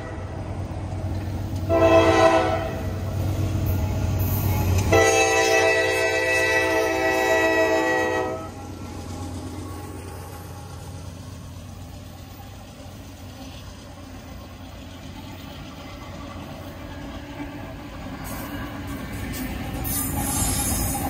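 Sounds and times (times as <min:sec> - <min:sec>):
diesel locomotive engines rumbling: 0:00.0 - 0:21.0
train horn: 0:01.6 - 0:03.0, 0:04.7 - 0:08.6.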